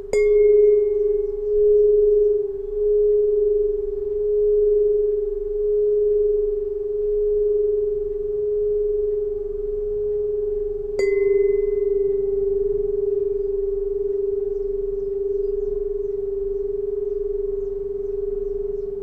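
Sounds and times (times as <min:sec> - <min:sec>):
metallic ping: 0:00.0 - 0:06.4, 0:11.0 - 0:16.7
tuning pipe ringing tone: 0:00.0 - 0:19.0.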